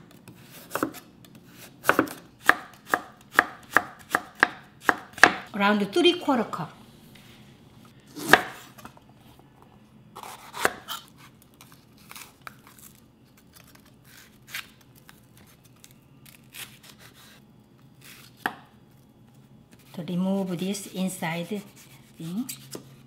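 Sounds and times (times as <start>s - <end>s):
knife slicing and scraping: 10.2s - 14.8s, 16.3s - 17.4s, 18.0s - 18.5s, 19.8s - 23.0s.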